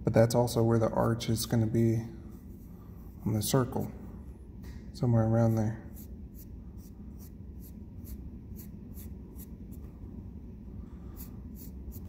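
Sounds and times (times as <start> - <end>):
pencil scratching on paper: 6.0 - 9.5, 11.2 - 12.0.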